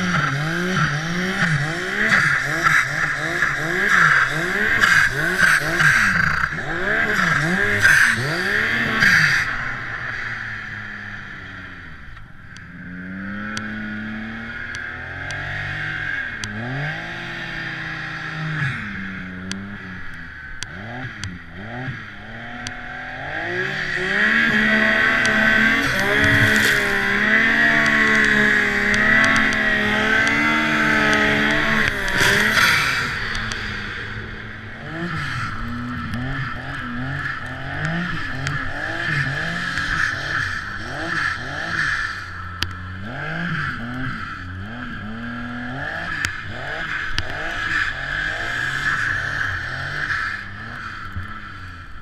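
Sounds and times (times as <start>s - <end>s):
snowmobile engine revving: 0.0s - 52.0s
high whine: 18.8s - 42.8s.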